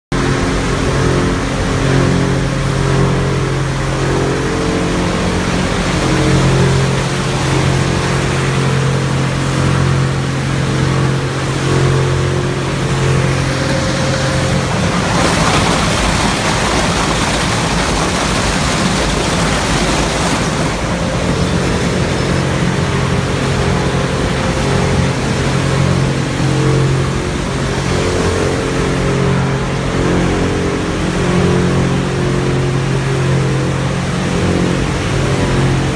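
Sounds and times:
plastic shredder humming: 11.7 - 21.3.

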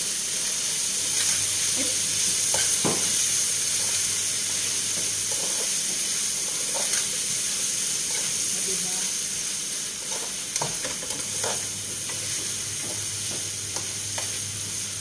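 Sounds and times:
food sizzling in a pan: 0.0 - 15.0
knocks on pan: 2.8 - 3.1.

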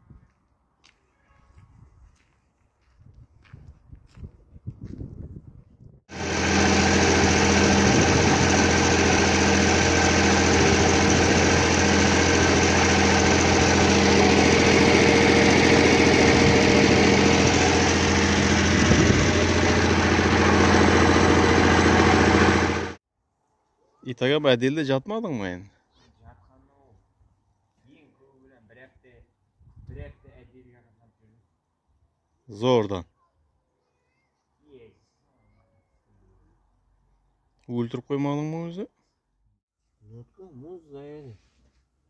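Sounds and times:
machine motor droning: 6.1 - 23.0.

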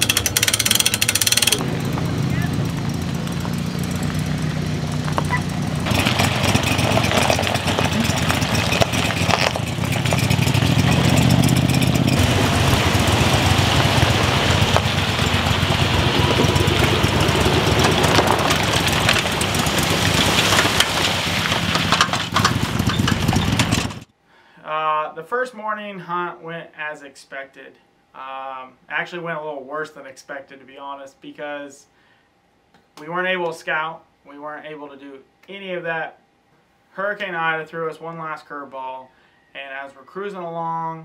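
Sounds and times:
engine running with low hum: 0.0 - 24.1.

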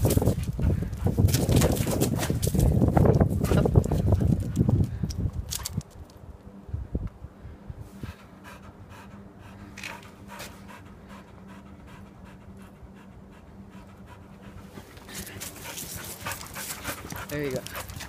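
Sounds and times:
puppy panting: 8.0 - 18.0.

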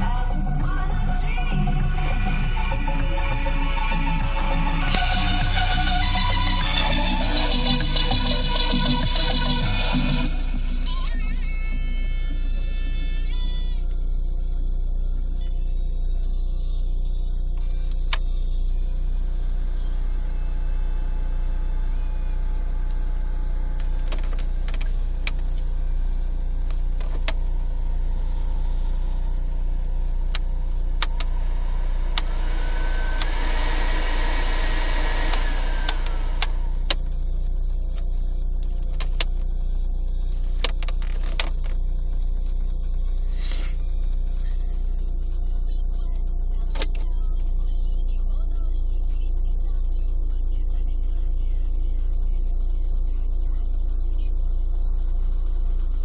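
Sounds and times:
car engine humming: 0.0 - 56.0
rushing hiss with whine: 27.4 - 37.2.

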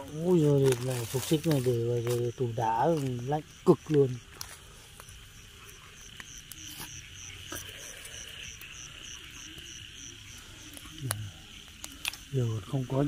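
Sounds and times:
person speaking: 0.0 - 4.3
insect chirping: 0.0 - 13.0
night insects hissing: 0.0 - 13.0.

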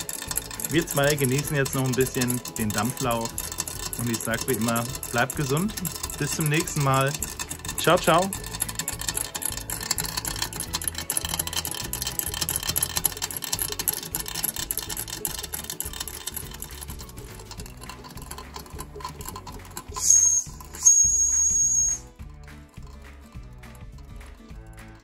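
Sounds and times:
toy steam engine ticking rattle: 0.0 - 25.0
high steam whistle: 20.0 - 22.1.

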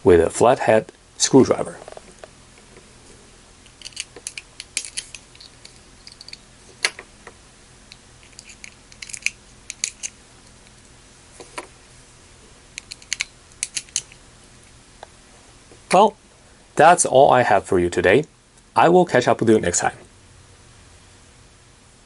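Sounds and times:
screwdriver clicking in padlocks: 3.7 - 6.4, 12.8 - 14.1.

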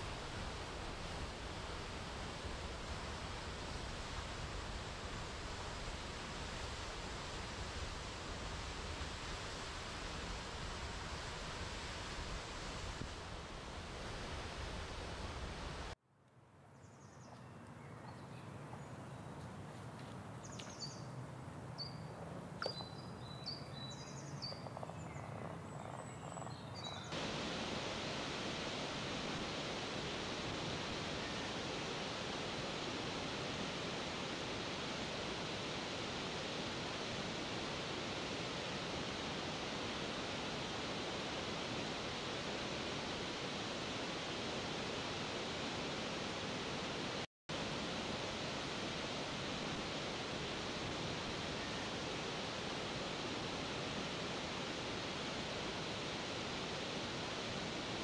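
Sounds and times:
waterfall rushing: 27.2 - 58.0.

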